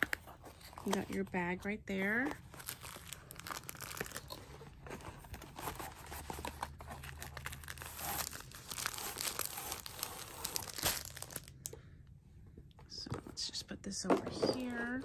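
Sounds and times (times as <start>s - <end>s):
plastic bag and cardboard crinkling: 0.0s - 11.8s.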